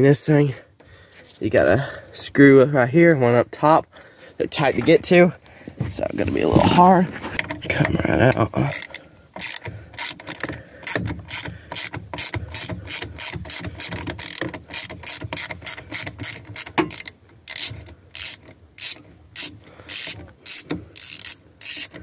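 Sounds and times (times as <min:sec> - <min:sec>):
hand ratchet clicking: 0:08.3 - 0:22.0.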